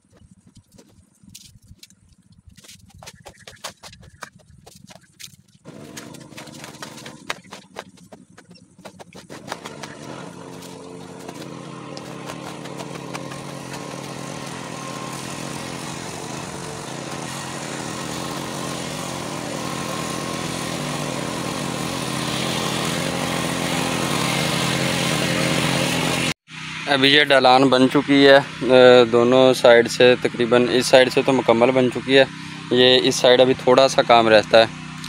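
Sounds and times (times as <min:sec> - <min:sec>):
small engine running: 0:00.0 - 0:35.0
spade scraping in soil: 0:04.7 - 0:18.5.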